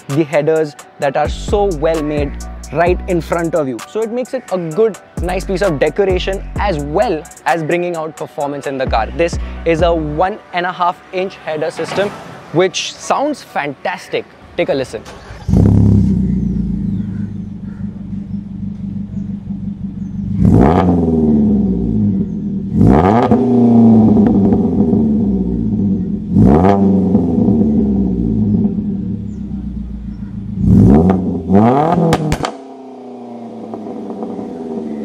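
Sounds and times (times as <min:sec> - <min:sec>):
car engine revving: 0:15.0 - 0:35.0
engine idling: 0:15.1 - 0:20.6, 0:27.7 - 0:30.6.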